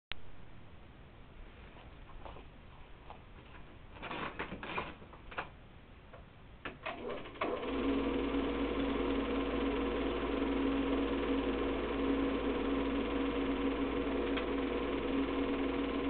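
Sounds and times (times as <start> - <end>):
projector whirring clatter: 6.6 - 16.0.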